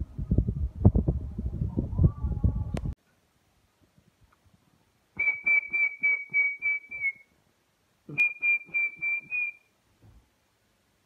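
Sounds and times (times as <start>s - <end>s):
whistling short toots: 5.2s - 7.3s, 8.1s - 9.7s
faint low thump: 10.0s - 10.3s.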